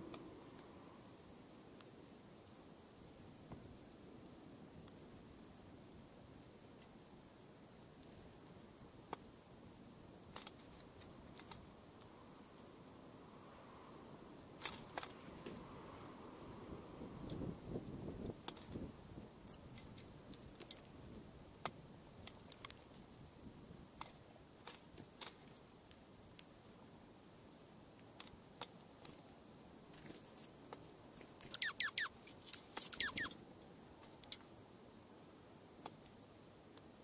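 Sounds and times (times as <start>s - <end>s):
high bird chips: 31.4s - 33.4s.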